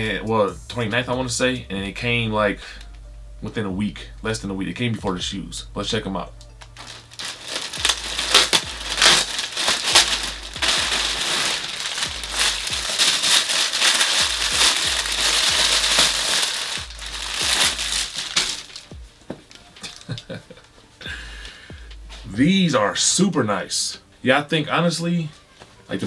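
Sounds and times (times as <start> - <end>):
plastic bags crinkling: 6.6 - 20.7.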